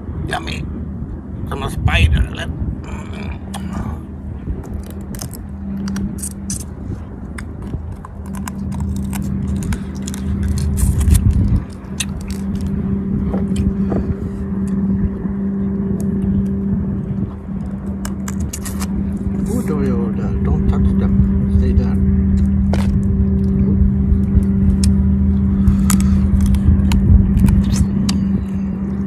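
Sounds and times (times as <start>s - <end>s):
low motor hum: 0.0s - 29.0s
chewing: 4.6s - 12.8s, 18.0s - 19.0s, 24.2s - 28.2s
prawn shells cracking: 4.6s - 12.8s, 25.6s - 27.9s.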